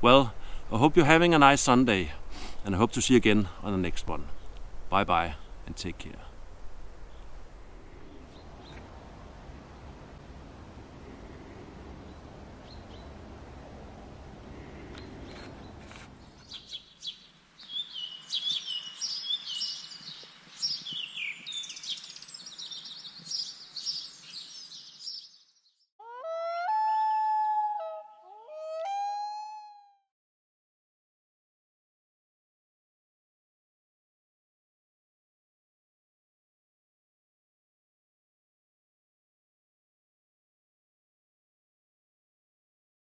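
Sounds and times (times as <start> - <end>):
low rushing noise: 4.3 - 16.4
birds chirping and trilling: 12.0 - 13.3, 14.6 - 25.9
long rising pitched calls: 26.0 - 30.0.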